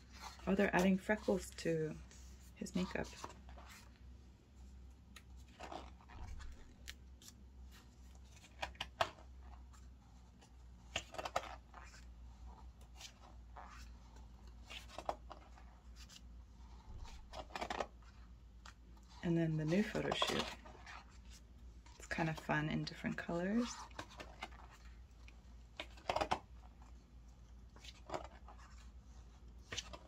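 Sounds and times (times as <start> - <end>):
book pages turning: 0.0 - 4.1, 4.7 - 30.0.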